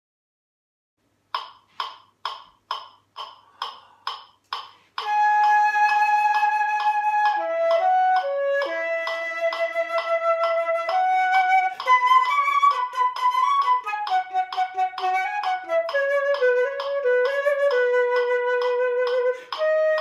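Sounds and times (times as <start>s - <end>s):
metronome clicking: 1.3s - 20.0s
flute playing: 5.0s - 20.0s.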